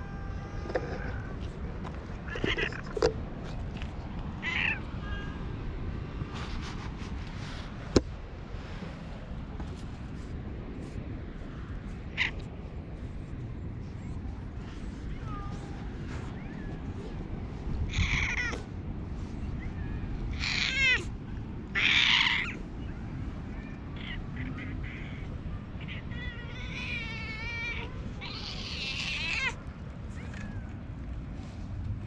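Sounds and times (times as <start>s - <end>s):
cat meowing hoarsely: 17.9s - 18.6s, 20.3s - 21.1s, 25.8s - 29.6s.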